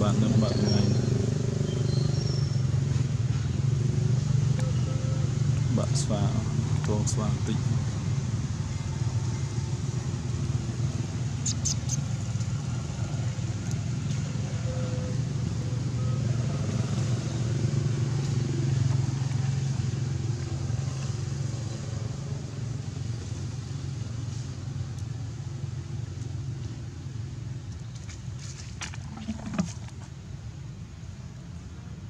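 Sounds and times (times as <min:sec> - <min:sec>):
motor engine humming: 0:28.8 - 0:30.3.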